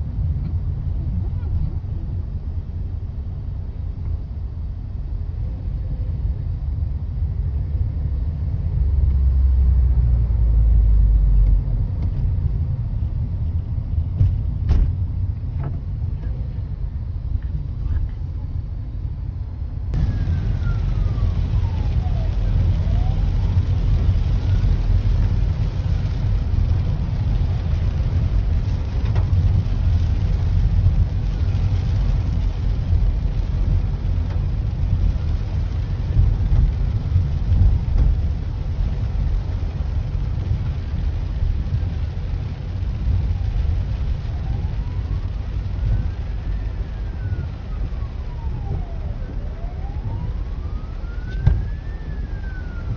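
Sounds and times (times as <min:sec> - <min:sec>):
steady low rumble: 0:00.0 - 0:52.9
faint siren wailing: 0:19.9 - 0:26.2, 0:42.7 - 0:52.9
rain on car windscreen and roof: 0:19.9 - 0:52.9.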